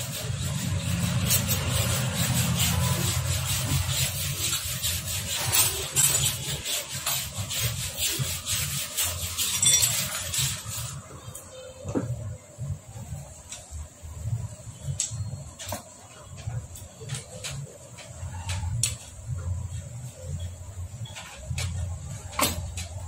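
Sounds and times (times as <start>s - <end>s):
metal casing scraping and clicking: 0.0s - 11.5s.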